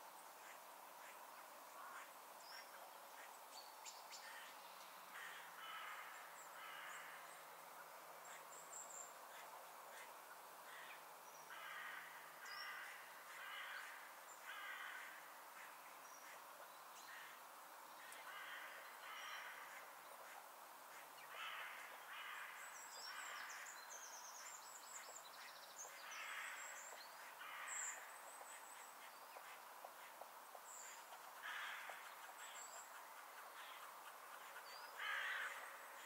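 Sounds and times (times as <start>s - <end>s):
crow cawing: 5.2s - 7.2s, 10.7s - 15.2s, 18.0s - 19.8s, 21.3s - 22.6s, 27.4s - 28.0s, 31.4s - 32.1s, 33.6s - 33.9s, 34.5s - 35.8s.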